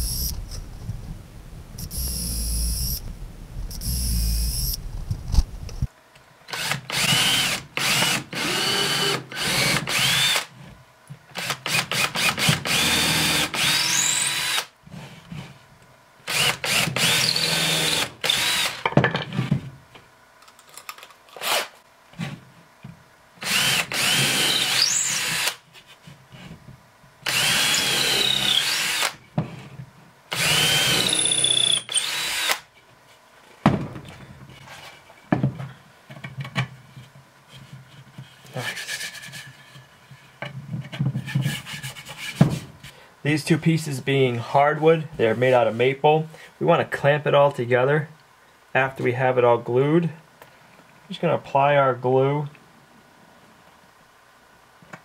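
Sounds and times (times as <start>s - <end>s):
drill trigger blips: 0.0s - 0.6s, 1.8s - 4.8s
cordless drill boring into wood: 6.5s - 10.5s, 11.4s - 14.7s, 16.3s - 18.8s, 23.4s - 25.6s, 27.3s - 29.2s, 30.3s - 32.6s.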